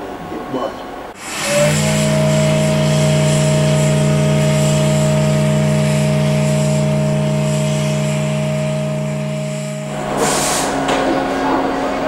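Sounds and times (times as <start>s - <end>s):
factory whistles sounding chord: 1.2s - 12.0s.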